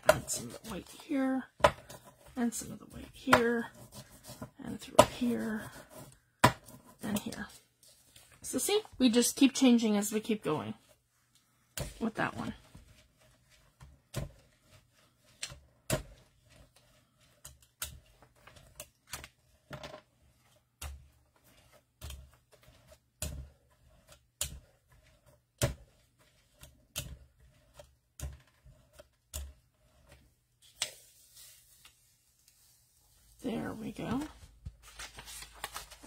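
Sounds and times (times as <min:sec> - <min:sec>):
paper rustling: 0:34.2 - 0:36.0.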